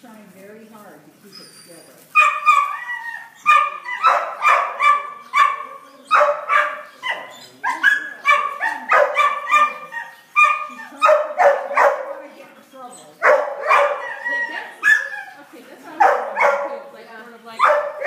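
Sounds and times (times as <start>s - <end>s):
dog barking: 2.2s - 12.3s, 13.2s - 15.2s, 15.9s - 16.9s, 17.6s - 18.0s.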